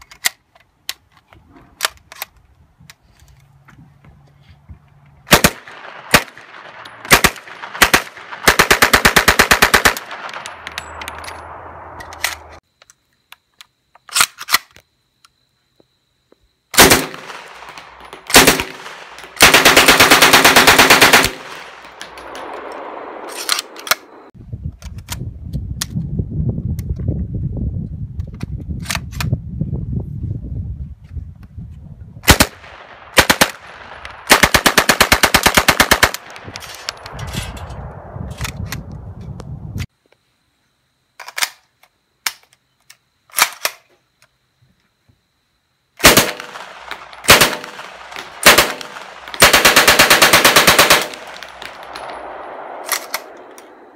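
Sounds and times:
submachine gun firing: 5.3 - 10.6, 16.8 - 24.2, 32.3 - 36.5, 46.0 - 53.9
low rumbling noise: 10.1 - 12.6, 21.4 - 24.6, 36.3 - 39.9.

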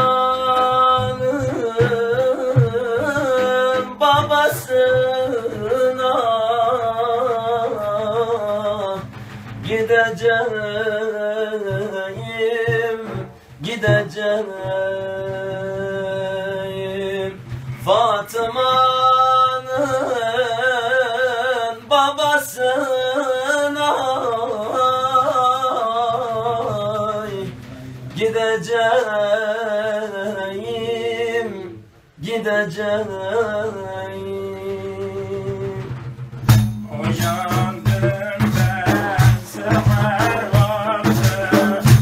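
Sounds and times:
man singing melismatic line: 0.0 - 9.1, 36.8 - 42.0
man singing ornamented line: 0.0 - 36.1, 36.8 - 42.0
frame drums: 0.0 - 42.0.

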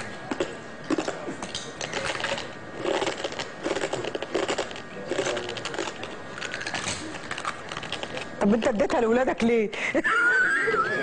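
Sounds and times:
glass being chewed and crunched: 0.0 - 8.7.

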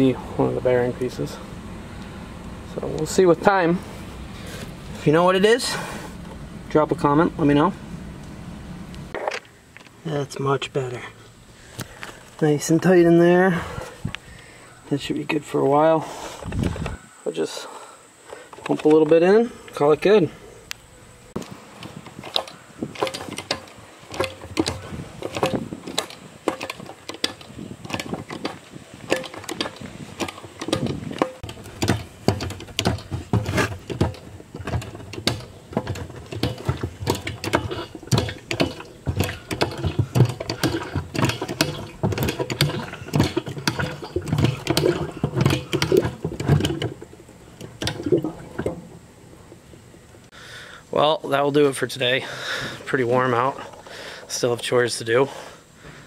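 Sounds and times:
hand pump clicking and knocking: 21.4 - 49.8.

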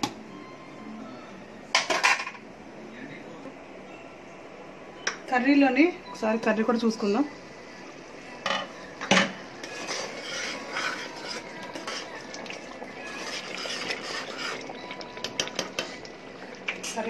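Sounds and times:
metal spoon stirring in pot: 9.6 - 16.1.

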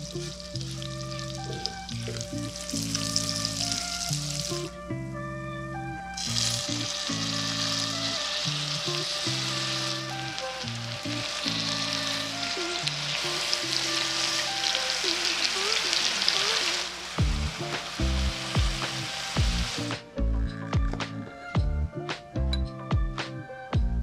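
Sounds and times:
butter sizzling in a frying pan: 0.0 - 4.7, 6.2 - 20.0.

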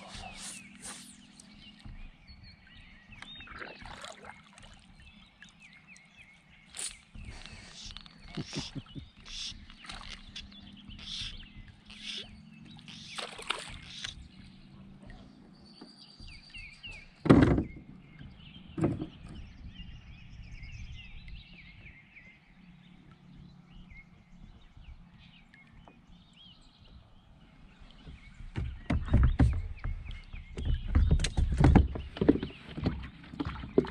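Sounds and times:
birds chirping: 0.0 - 33.9
knocks on plastic kayak: 17.2 - 17.8, 28.5 - 33.9.

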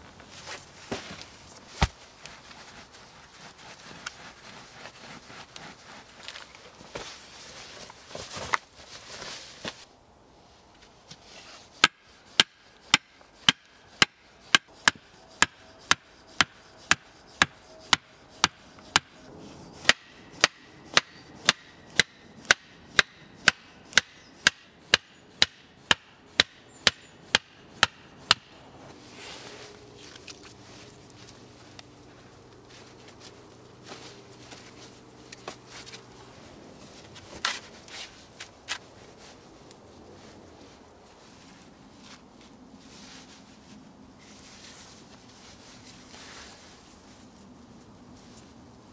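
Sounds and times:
hammer knocking wooden stakes: 11.8 - 19.2, 19.8 - 28.6.

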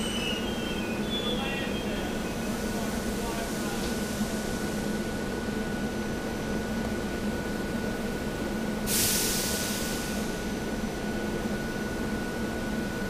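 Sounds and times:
electric train humming: 0.0 - 3.8
air brakes hissing: 8.9 - 10.5.

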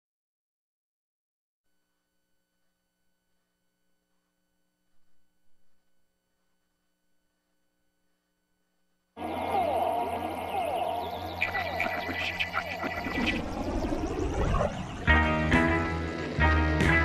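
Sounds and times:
faint steady hum: 1.7 - 15.1.

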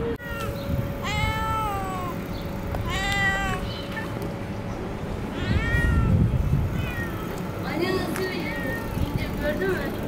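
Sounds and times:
cat meowing: 0.2 - 2.2, 2.8 - 3.8, 5.3 - 7.3.

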